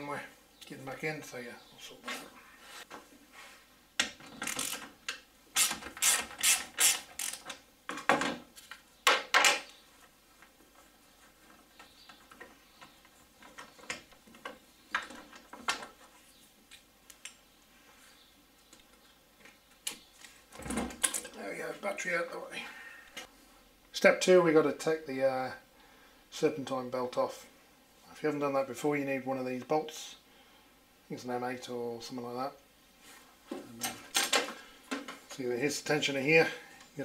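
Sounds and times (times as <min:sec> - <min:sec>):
socket ratchet clicking: 0:05.6 - 0:07.5.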